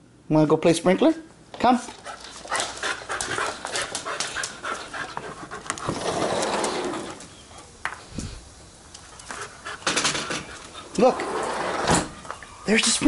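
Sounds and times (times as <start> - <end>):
puppy panting: 1.8 - 7.8, 9.0 - 11.0
sliding glass door rolling open: 5.8 - 7.2, 10.0 - 12.2.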